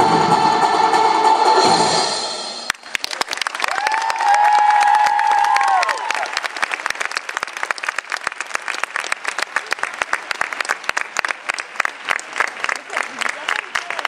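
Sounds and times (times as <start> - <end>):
audience applauding: 2.7 - 14.0.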